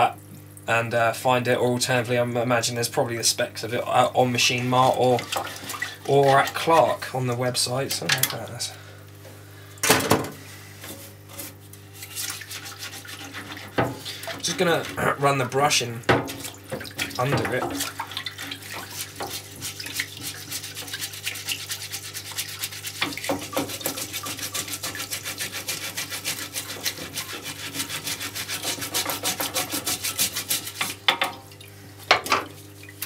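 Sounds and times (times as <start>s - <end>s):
pump humming: 3.4s - 10.9s, 11.7s - 33.0s
wet brush scrubbing: 4.4s - 7.8s, 10.4s - 31.1s.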